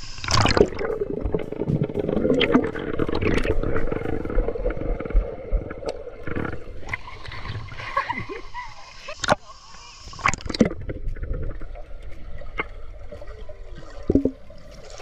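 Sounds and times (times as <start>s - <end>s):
knocks and low thumps: 0.6s - 5.7s.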